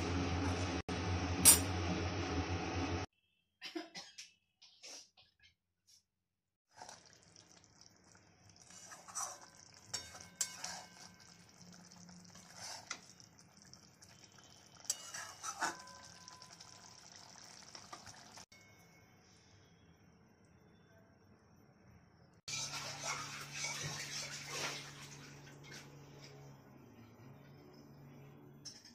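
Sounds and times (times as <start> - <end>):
gravy simmering and sizzling: 6.7 - 18.6, 22.5 - 26.6
spatula scraping metal pan: 8.6 - 11.4, 14.8 - 16.0.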